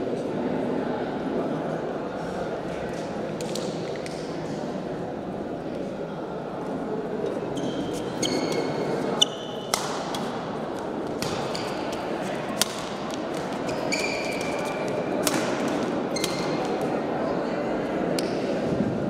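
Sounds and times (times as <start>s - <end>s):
murmur of voices: 0.0s - 19.0s
shoes squeaking on floor: 7.5s - 9.8s, 11.4s - 12.0s, 13.4s - 15.0s, 16.1s - 16.6s
racket hitting shuttlecock: 8.4s - 10.4s, 11.1s - 16.8s.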